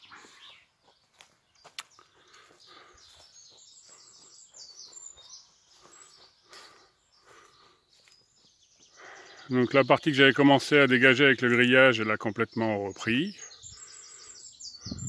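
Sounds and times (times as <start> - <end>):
footsteps on leafy dirt path: 0.0 - 9.2
birds chirping: 0.0 - 15.0.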